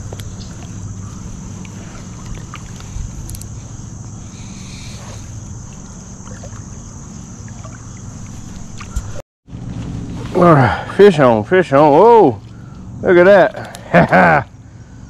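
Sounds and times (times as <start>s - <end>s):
river water flowing and lapping: 0.0s - 11.3s.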